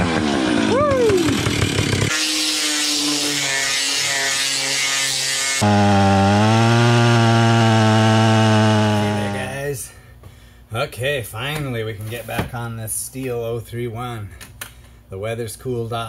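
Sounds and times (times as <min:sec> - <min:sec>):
angle grinder grinding steel: 0:00.0 - 0:09.5
chainsaw cutting a log: 0:00.0 - 0:09.6.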